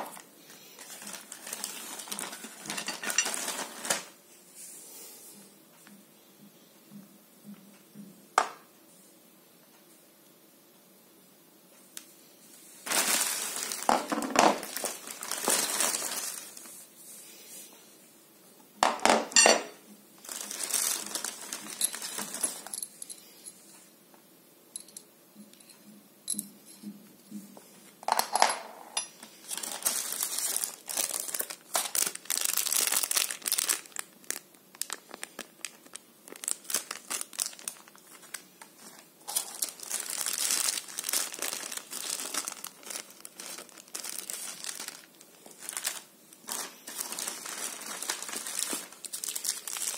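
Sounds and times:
plastic bags crinkling: 0.0 - 4.2, 12.8 - 16.8, 20.2 - 22.9, 29.2 - 49.9.

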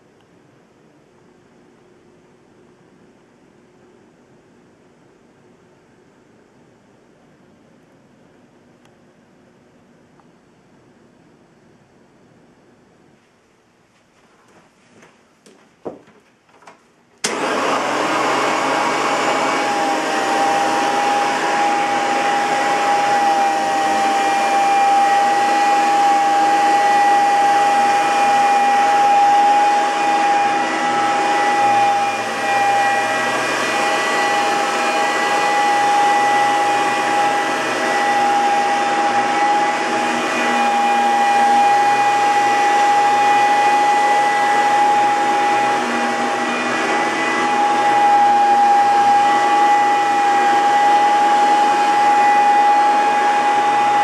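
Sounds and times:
vacuum cleaner whining: 17.2 - 54.0
vacuum motor air rush: 17.2 - 54.0.

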